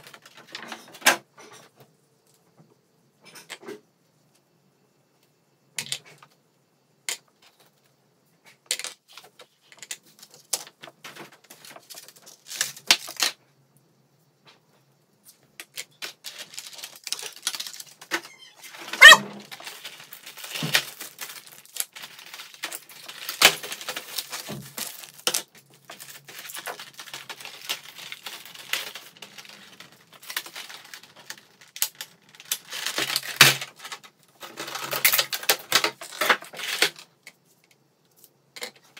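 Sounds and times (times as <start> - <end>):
plastic crinkling and crackling: 0.0 - 1.6, 8.7 - 13.4, 15.3 - 37.4.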